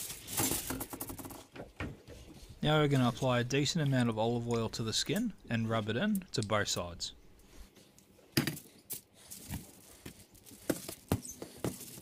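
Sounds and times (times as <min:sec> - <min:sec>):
foil rustling: 0:00.0 - 0:00.7.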